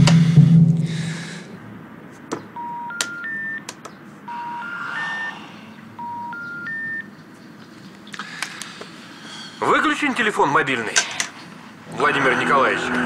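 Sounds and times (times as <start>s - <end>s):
rising three-tone phone beeps: 2.6s - 3.7s, 4.3s - 5.4s, 6.0s - 7.1s.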